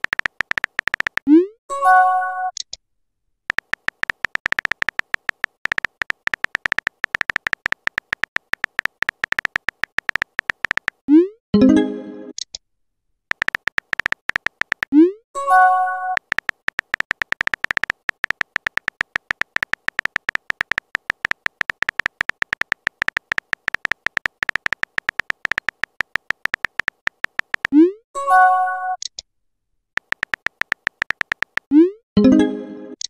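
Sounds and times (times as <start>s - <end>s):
phone keyboard typing clicks: 0.0s - 1.3s, 3.5s - 11.1s, 13.3s - 15.0s, 16.1s - 27.8s, 30.0s - 31.8s.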